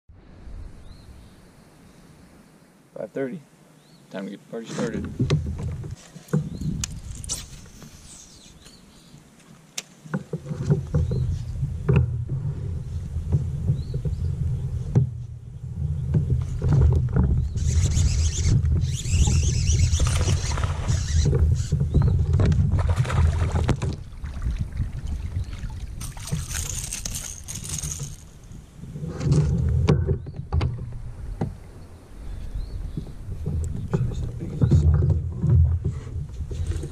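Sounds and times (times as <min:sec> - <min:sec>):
splashing water: 0:22.7 - 0:28.3.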